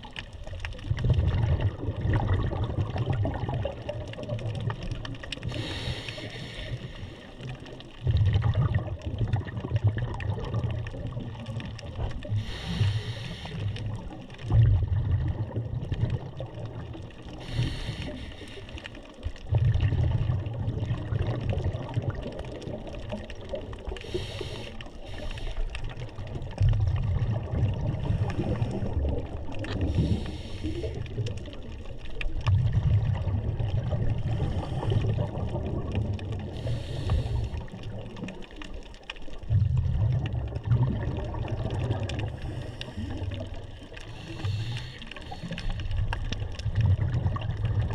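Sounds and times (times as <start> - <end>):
exhaled air bubbling underwater: 0.0 - 47.9
regulator hiss on inhale: 5.4 - 7.5, 12.3 - 14.1, 17.3 - 19.1, 23.9 - 25.9, 29.7 - 31.2, 34.3 - 35.2, 36.5 - 37.9, 42.3 - 46.4.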